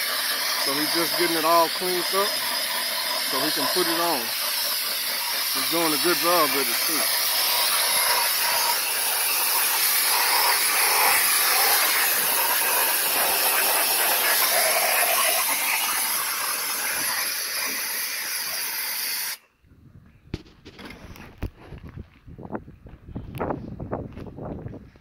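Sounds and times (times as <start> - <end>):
air spray gun hissing: 0.0 - 19.4.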